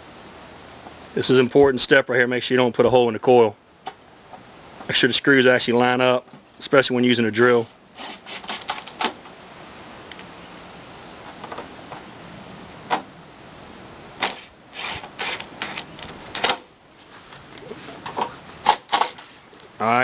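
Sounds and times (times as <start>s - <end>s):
cordless drill driving screws: 8.0s - 9.0s, 14.2s - 16.5s.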